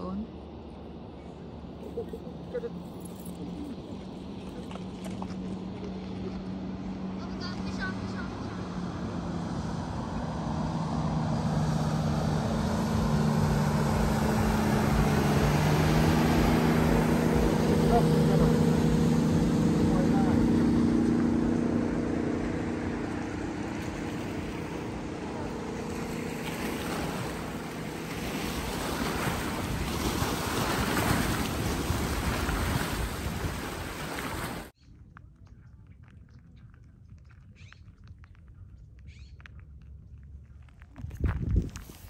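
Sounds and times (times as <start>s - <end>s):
motorboat engine hum: 0.0s - 34.8s
boat wake washing on rocks: 3.5s - 34.7s
wind on microphone: 22.4s - 39.2s, 40.8s - 42.0s.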